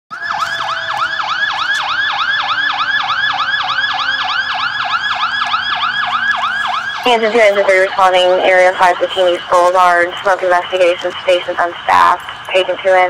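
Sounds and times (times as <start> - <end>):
electronic siren yelping: 0.1 - 9.6.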